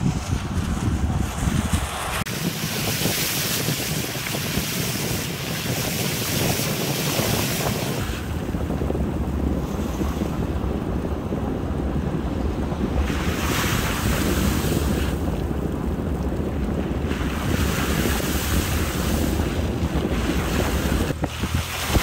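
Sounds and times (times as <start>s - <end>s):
wind buffeting microphone: 0.0s - 22.0s
rush of floodwater: 1.8s - 8.8s, 12.0s - 22.0s.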